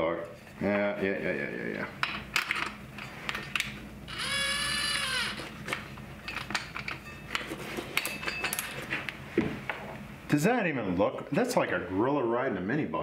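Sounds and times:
cordless drill motor whine: 0:04.1 - 0:05.5.

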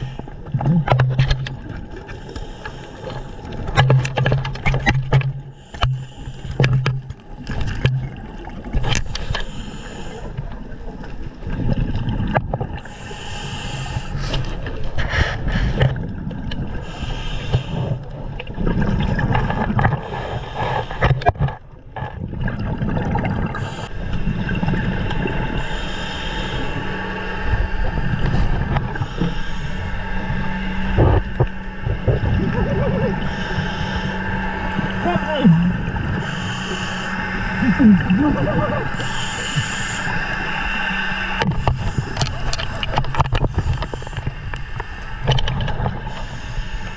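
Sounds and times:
diver breathing through regulator: 0:02.0 - 0:03.6, 0:05.3 - 0:07.1, 0:08.8 - 0:10.4, 0:12.8 - 0:16.0, 0:16.7 - 0:18.1, 0:19.9 - 0:21.4, 0:23.4 - 0:24.5, 0:25.5 - 0:27.6, 0:28.2 - 0:32.2, 0:33.1 - 0:46.9
exhaled bubbles rushing: 0:18.1 - 0:20.0, 0:22.1 - 0:25.6, 0:30.9 - 0:33.4, 0:37.4 - 0:40.6
steady low hum: 0:22.8 - 0:46.9.

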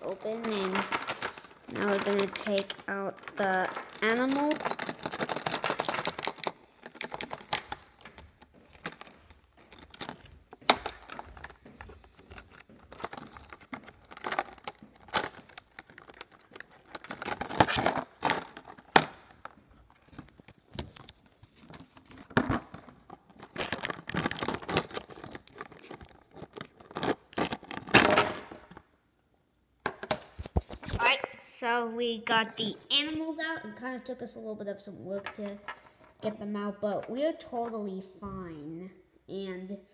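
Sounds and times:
plastic clicking and rustling: 0:00.0 - 0:28.9, 0:35.2 - 0:36.4.

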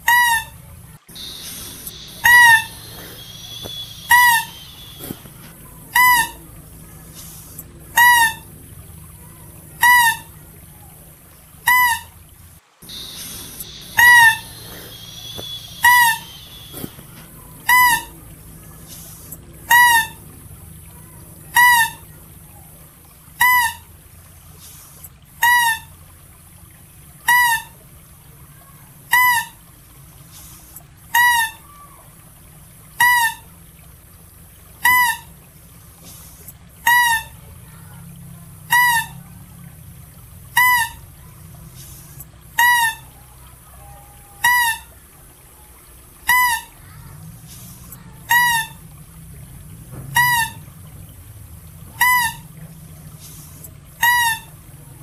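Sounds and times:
mouse-deer calling: 0:01.1 - 0:08.6, 0:09.2 - 0:11.0, 0:11.6 - 0:12.1, 0:12.8 - 0:18.2, 0:18.8 - 0:20.2, 0:21.0 - 0:22.0, 0:34.8 - 0:35.3.

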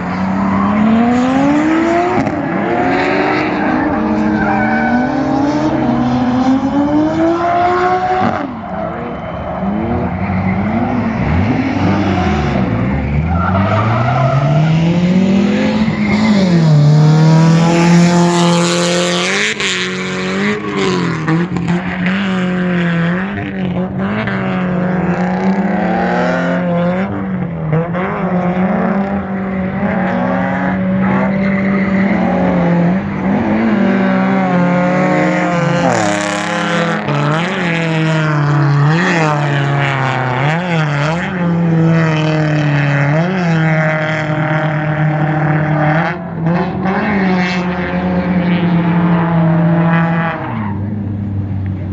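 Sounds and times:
tyres squealing on asphalt: 0:00.0 - 0:06.3, 0:07.1 - 0:17.2, 0:19.2 - 0:22.7, 0:29.2 - 0:41.5
car engines revving: 0:00.0 - 0:51.9.

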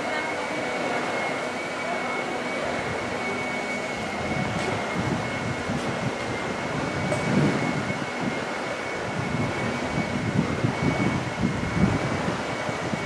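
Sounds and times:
mechanical hum with high whine: 0:00.0 - 0:13.0
wind buffeting microphone: 0:03.9 - 0:13.0.

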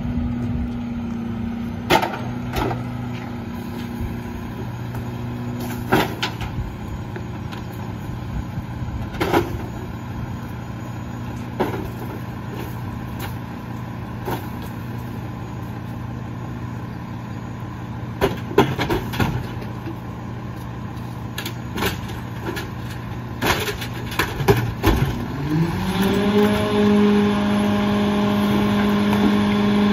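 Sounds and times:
garbage truck idling: 0:00.0 - 0:29.9
junk clanking into hopper: 0:01.8 - 0:04.1, 0:05.0 - 0:06.6, 0:09.0 - 0:10.0, 0:11.4 - 0:13.4, 0:18.1 - 0:20.1, 0:21.3 - 0:29.9.

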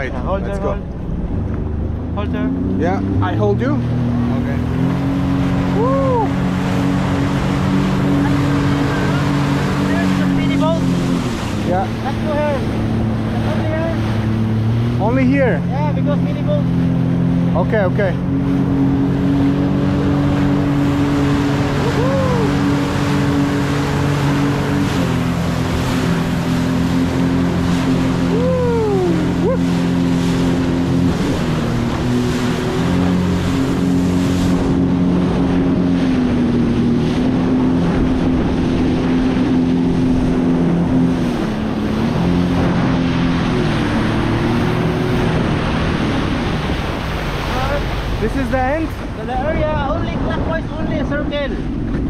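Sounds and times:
jet ski engine: 0:00.0 - 0:52.0
wind on microphone: 0:16.6 - 0:52.0.

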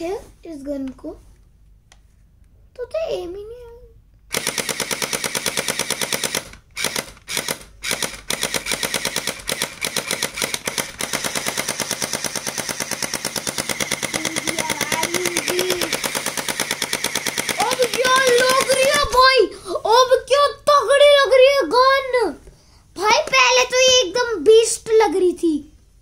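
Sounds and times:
toy gun firing full-auto: 0:04.3 - 0:19.3.

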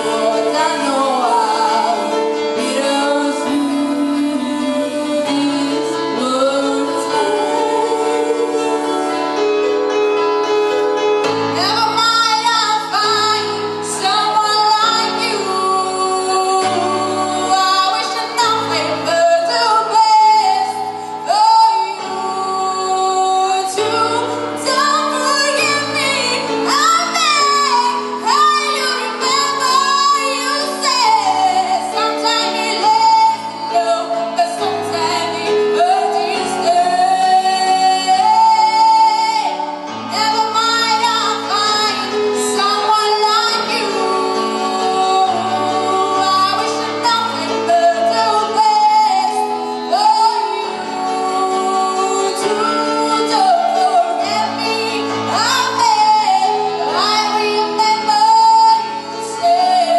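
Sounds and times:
woman singing into a microphone: 0:00.0 - 0:59.9.

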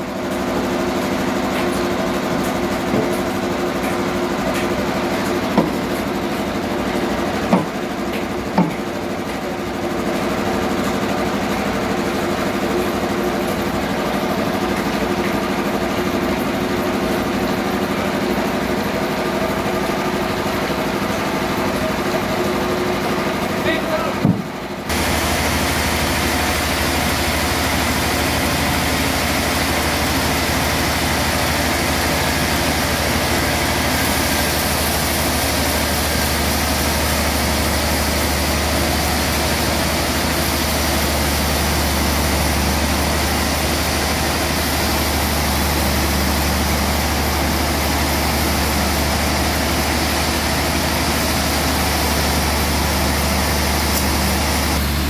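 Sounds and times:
band saw cutting a log: 0:24.2 - 0:55.0.

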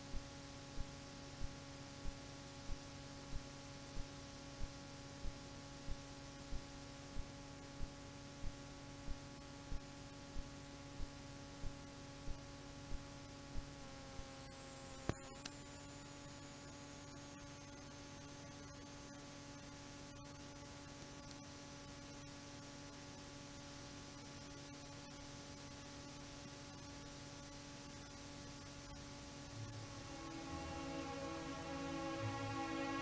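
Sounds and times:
faint regular ticks: 0:00.0 - 0:29.8
faint electrical hum: 0:00.0 - 0:33.0.

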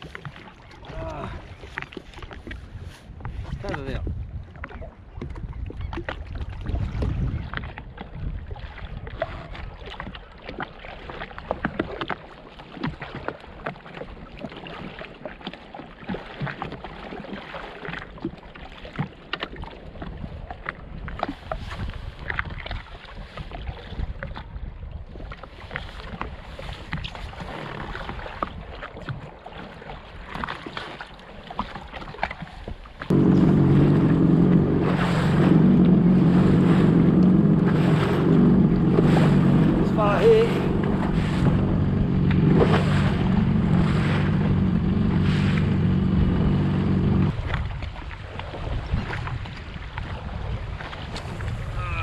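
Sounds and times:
water lapping against hull: 0:00.0 - 0:52.0
wind buffeting microphone: 0:00.8 - 0:10.2, 0:20.0 - 0:29.3, 0:32.7 - 0:52.0.

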